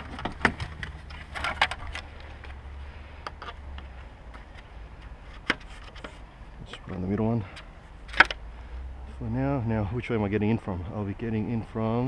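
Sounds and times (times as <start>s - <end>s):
paddles and gear knocking: 0.0s - 2.6s
steady low hum: 0.0s - 12.0s.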